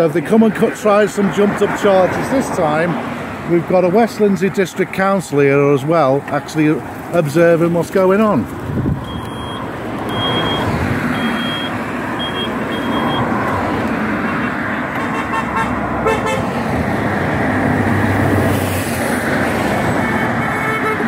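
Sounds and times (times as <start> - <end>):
vehicle engine rumble: 0.0 - 21.0
short high beeps: 9.0 - 13.2.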